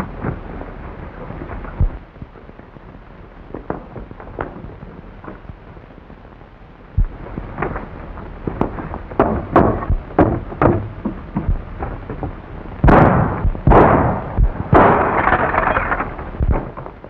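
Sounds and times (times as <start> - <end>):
revolver gunshots: 12.8 - 16.7
heavy gun blasts: 12.8 - 16.8.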